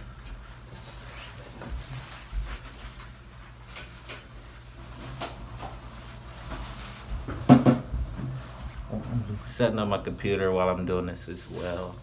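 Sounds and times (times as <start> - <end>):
knocks and clicks of handling things: 6.5 - 8.4.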